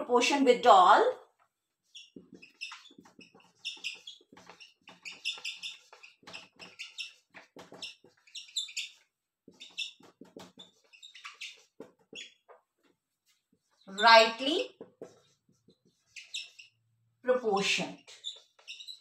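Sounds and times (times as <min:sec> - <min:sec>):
whiteboard marker squeaking: 0:01.8 - 0:12.7, 0:13.3 - 0:16.8, 0:17.5 - 0:19.0
marker tapping on whiteboard: 0:02.1 - 0:12.6.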